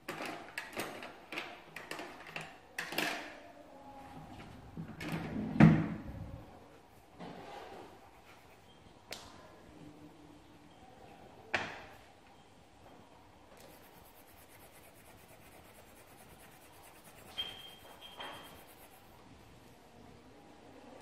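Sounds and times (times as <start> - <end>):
pencil scratching on paper: 7.4 - 8.7, 13.6 - 19.2.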